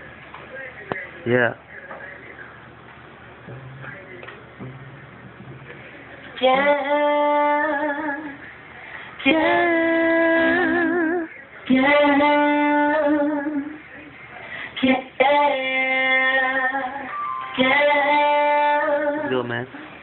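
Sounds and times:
high voice singing long notes: 3.5s - 4.0s, 4.6s - 5.7s, 16.9s - 19.3s.

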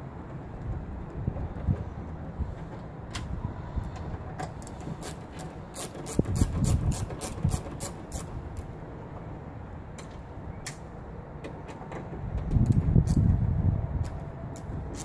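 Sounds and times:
hand ratchet clicking: 4.6s - 8.7s, 14.0s - 15.0s.

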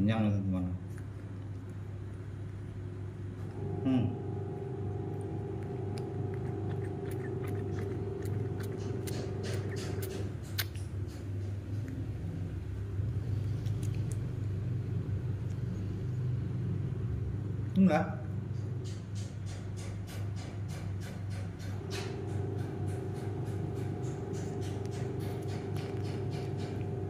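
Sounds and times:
steady low hum: 0.0s - 27.0s
wet sucking clicks and smacks: 4.9s - 16.4s, 18.6s - 27.0s.

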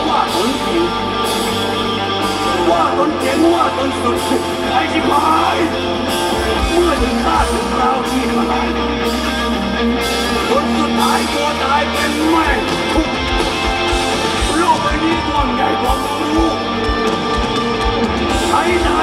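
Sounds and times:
live rock band playing: 0.0s - 19.0s
lead singer singing: 2.4s - 9.4s.

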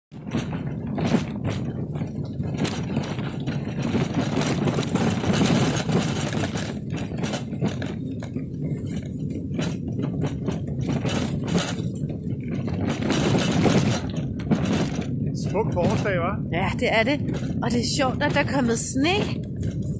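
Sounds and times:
tyres rolling on dirt: 0.1s - 19.9s
frame knocking and rattling: 0.2s - 16.3s.

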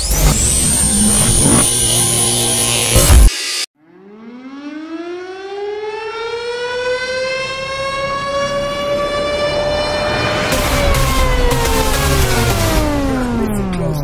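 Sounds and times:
siren-like wail rising: 0.0s - 13.8s.

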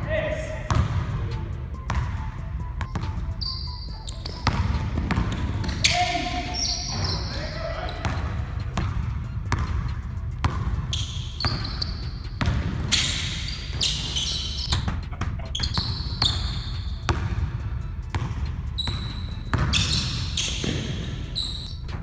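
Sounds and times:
sneakers squeaking on floor: 1.8s - 9.8s, 10.4s - 17.4s, 18.1s - 22.0s
basketball bouncing on hardwood: 4.2s - 5.8s.

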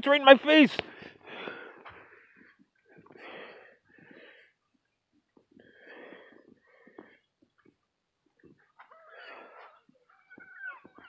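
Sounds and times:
person breathing: 0.8s - 7.5s, 9.0s - 9.9s.

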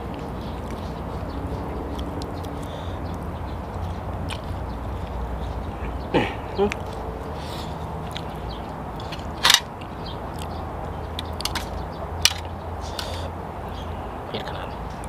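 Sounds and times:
person chewing food: 1.7s - 5.6s, 6.7s - 10.6s.

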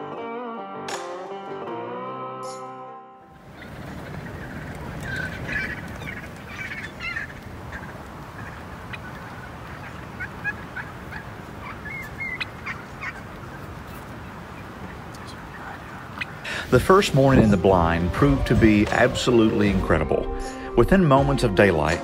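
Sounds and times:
wild turkeys calling: 3.4s - 20.6s.

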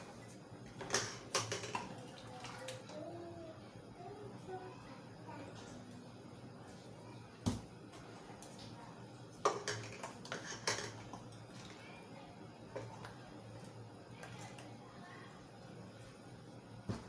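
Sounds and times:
metal cups clinking against pan: 0.8s - 2.0s, 9.4s - 11.2s.

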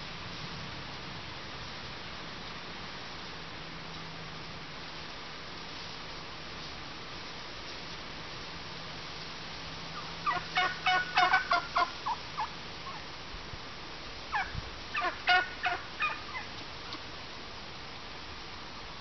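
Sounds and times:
wild turkeys calling: 9.9s - 13.2s, 14.3s - 17.0s.

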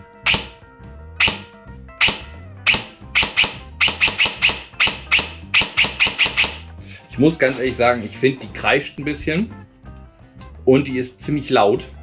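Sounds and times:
airsoft rifle shots: 1.2s - 6.6s.

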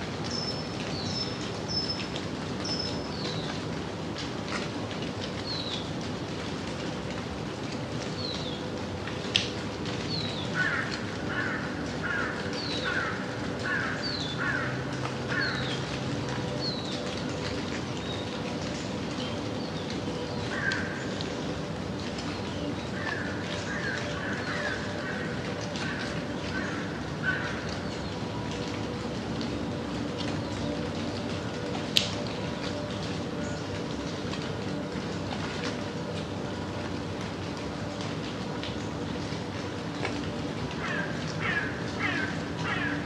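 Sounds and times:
gentle rain falling: 0.0s - 43.0s
crows cawing: 10.5s - 15.7s, 20.5s - 21.0s, 23.0s - 27.8s, 40.8s - 43.0s.

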